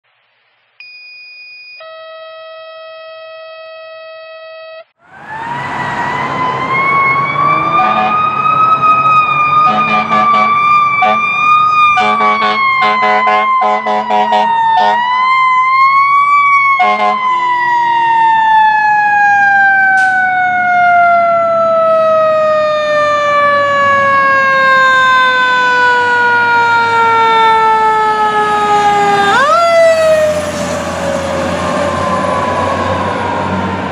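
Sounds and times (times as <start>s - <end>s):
fire engine siren: 4.8s - 33.9s
short horn blasts: 7.8s - 8.2s, 9.6s - 11.2s, 12.0s - 15.0s, 16.8s - 17.2s.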